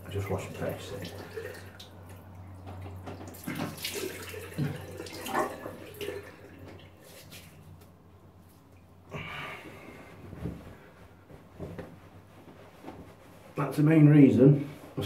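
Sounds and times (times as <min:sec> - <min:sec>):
water splashing from sink: 0:00.0 - 0:07.6.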